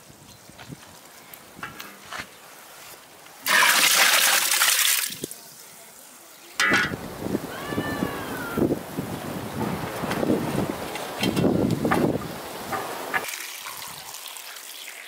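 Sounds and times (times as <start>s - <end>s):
water gushing: 3.4s - 9.6s, 10.3s - 15.0s.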